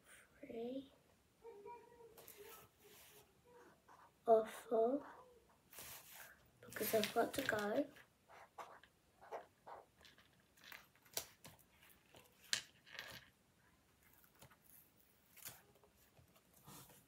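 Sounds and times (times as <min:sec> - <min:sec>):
marker tapping and scratching paper: 0:06.8 - 0:10.2.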